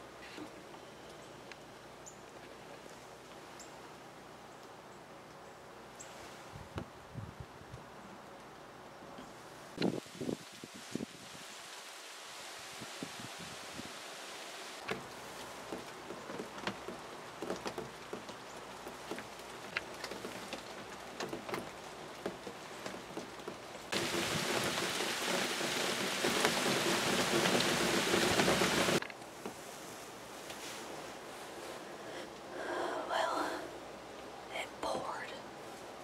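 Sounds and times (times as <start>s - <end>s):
rain falling: 7.9s - 36.0s
water drops dripping off roof: 14.8s - 29.0s.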